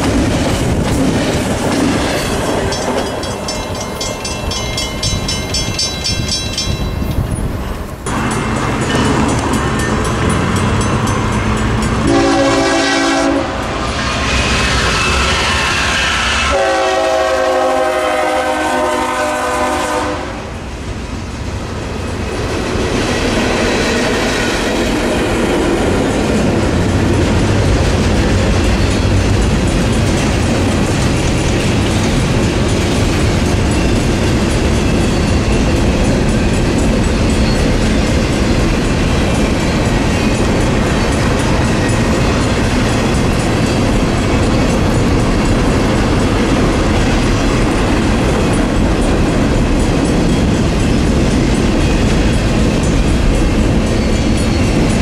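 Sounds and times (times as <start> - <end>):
railroad crossing bells: 0.0 - 55.0
train rumbling and clattering: 0.0 - 55.0
train horn blasts: 12.0 - 20.6.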